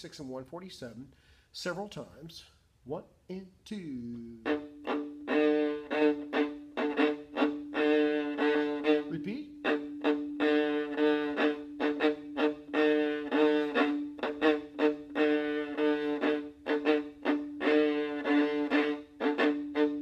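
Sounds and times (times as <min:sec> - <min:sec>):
viola bowing quick short notes: 0:04.2 - 0:20.0.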